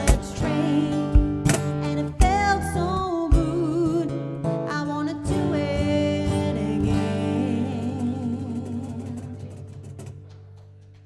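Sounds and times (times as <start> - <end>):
cajon hits: 0.0 - 2.6
woman singing with vibrato: 0.0 - 9.6
strummed acoustic guitar: 0.0 - 10.8.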